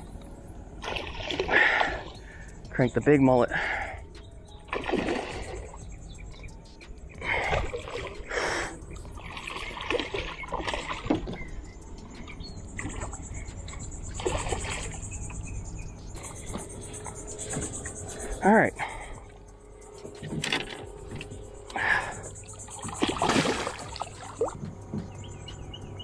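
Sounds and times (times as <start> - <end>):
water splashing: 0.8 - 2.2, 4.7 - 5.8, 7.2 - 11.5, 14.1 - 15.0, 22.7 - 24.7.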